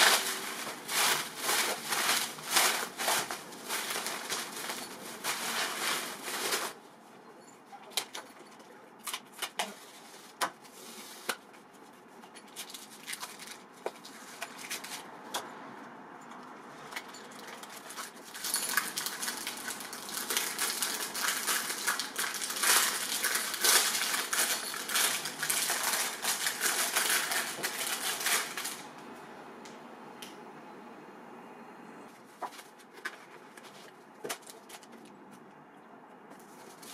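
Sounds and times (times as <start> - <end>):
plastic wrap crinkling: 0.0 - 6.8, 9.0 - 15.1, 17.0 - 29.1, 36.3 - 36.9.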